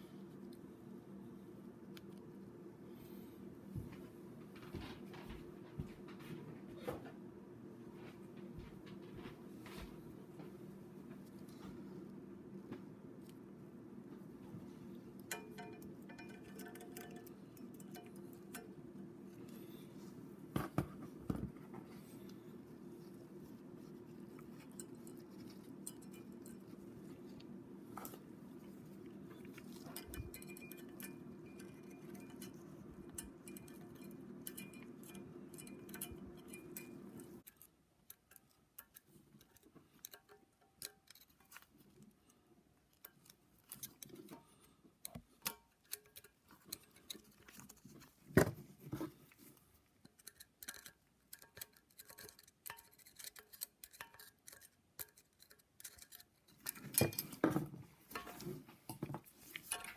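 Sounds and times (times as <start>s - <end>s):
steady low hum: 0.0s - 50.9s
small metal clicks: 15.2s - 18.7s, 29.4s - 48.0s, 49.8s - 57.4s.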